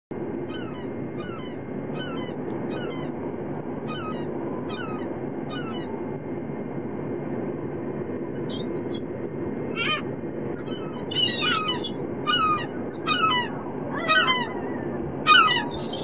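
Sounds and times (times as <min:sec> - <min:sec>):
gulls calling: 0:00.4 - 0:06.0, 0:07.0 - 0:16.0
steady rushing background: 0:06.0 - 0:16.0.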